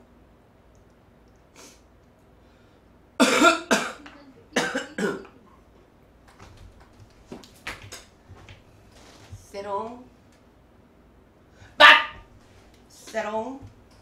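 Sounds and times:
woman coughing: 3.2 - 5.5.

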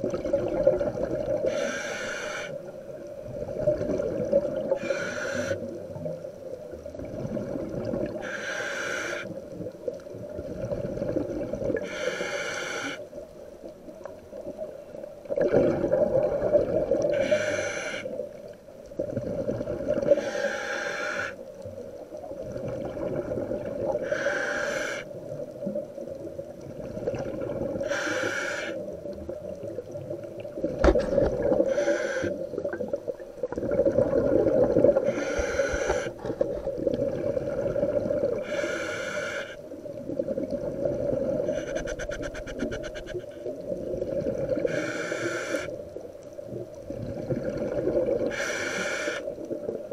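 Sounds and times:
exhaled bubbles rushing: 0.0 - 1.5, 3.2 - 4.8, 6.8 - 8.2, 9.5 - 11.8, 15.2 - 17.2, 18.9 - 20.2, 22.2 - 24.0, 25.3 - 27.9, 29.1 - 31.7, 32.4 - 38.5, 39.8 - 44.8, 46.4 - 48.4
scuba regulator hissing inhalations: 1.4 - 2.7, 4.7 - 5.8, 8.2 - 9.4, 11.8 - 13.1, 17.0 - 18.2, 20.0 - 21.4, 24.0 - 25.1, 27.8 - 28.9, 31.5 - 32.5, 34.9 - 36.6, 38.3 - 39.7, 41.3 - 43.5, 44.6 - 45.9, 48.2 - 49.4.

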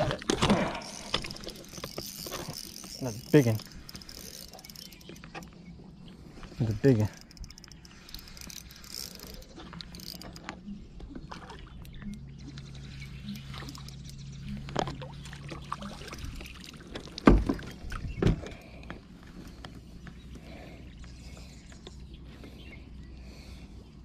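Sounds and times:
fishing reel cranking: 0.6 - 5.6, 6.6 - 10.6, 13.2 - 14.4.

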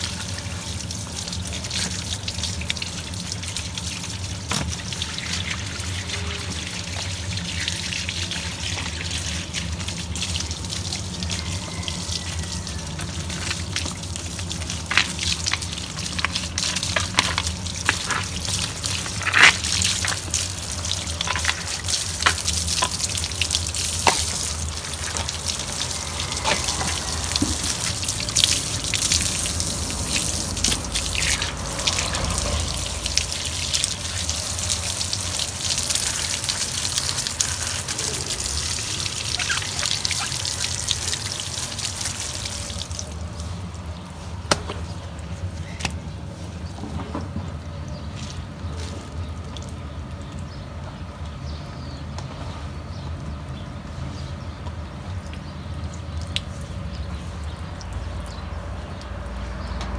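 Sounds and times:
water running and splashing: 0.0 - 46.8.

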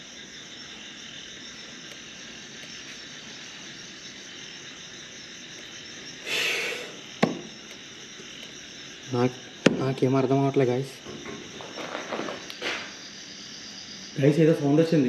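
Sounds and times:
crickets and night insects chirring: 0.0 - 15.0
knife knocking into wood: 7.2 - 7.5.

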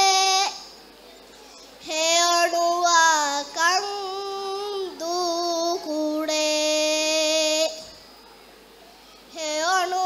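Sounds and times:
boy chanting into a microphone: 0.0 - 0.8, 1.5 - 8.0, 9.2 - 10.0.

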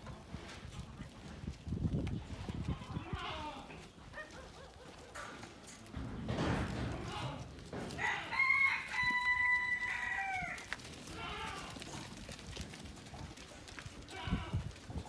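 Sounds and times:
rooster crowing: 8.0 - 10.7.

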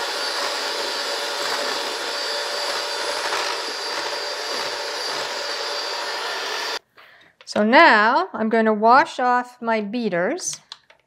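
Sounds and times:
electric hand mixer running: 0.0 - 6.8.

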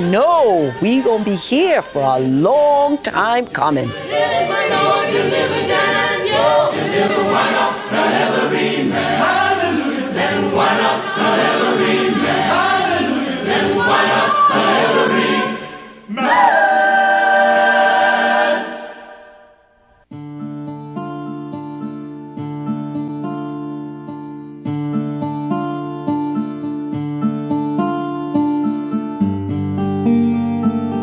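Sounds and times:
choir singing: 3.8 - 19.6.

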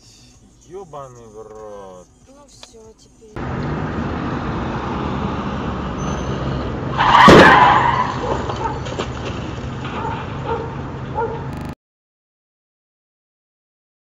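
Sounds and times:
low traffic hum: 0.0 - 11.8
loud car crash: 3.9 - 10.4
tyre screech: 6.0 - 8.8.

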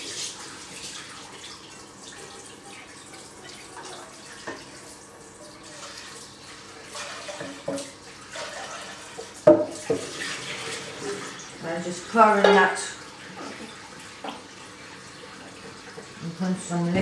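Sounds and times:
tap water running into sink: 0.0 - 17.0
crockery and pans clinking: 12.4 - 13.7.

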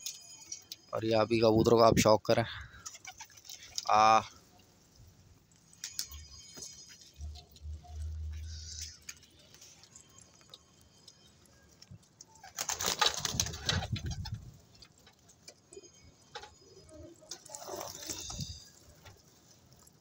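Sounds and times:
pigeons pecking: 2.8 - 3.9, 5.7 - 20.0
scuffling and wing flaps: 12.4 - 14.5.

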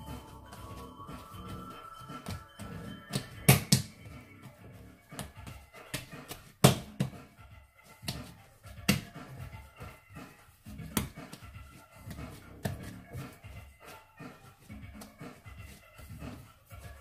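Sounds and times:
soft dough handling: 0.0 - 17.0
dough slapped on wooden board: 3.1 - 4.0, 5.1 - 7.2, 8.9 - 9.2, 10.8 - 11.4.

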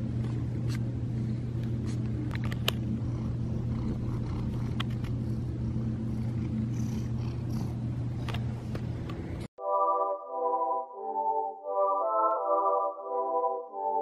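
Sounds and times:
cat purring: 2.8 - 8.3.

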